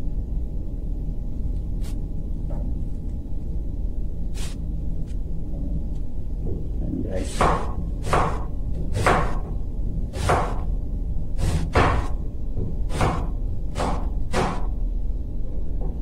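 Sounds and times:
low hum: 0:00.0 - 0:16.0
knife slicing onion on board: 0:07.2 - 0:09.4, 0:10.1 - 0:10.6, 0:11.4 - 0:12.2, 0:12.9 - 0:14.7.

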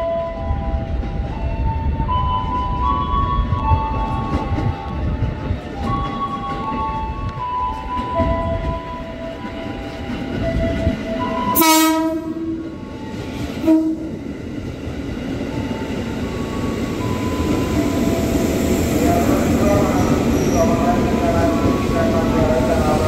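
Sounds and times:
electric train rolling past: 0:00.0 - 0:23.0
train horn blasts: 0:10.6 - 0:13.0, 0:13.6 - 0:14.2.

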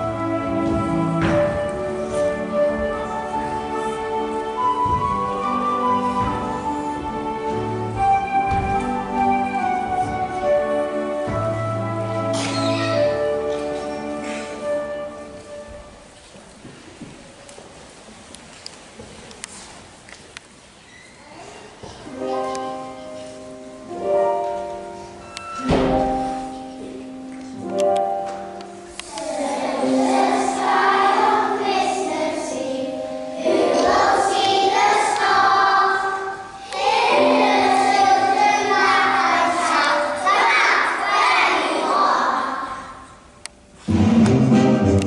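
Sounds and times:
instrumental accompaniment: 0:00.0 - 0:16.3, 0:22.1 - 0:42.8, 0:43.4 - 0:45.0
children singing: 0:29.0 - 0:43.1.

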